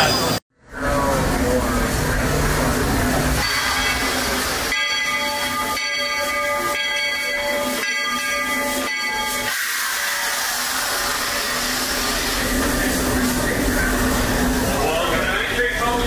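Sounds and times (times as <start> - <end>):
steam locomotive ringing tones: 0.0 - 16.0
steam hissing: 1.4 - 16.0.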